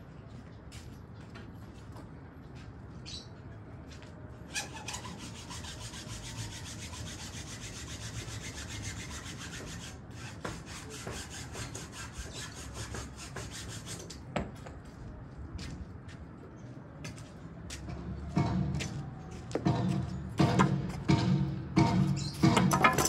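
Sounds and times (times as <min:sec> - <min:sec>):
hand saw cutting wood: 0:04.5 - 0:14.2.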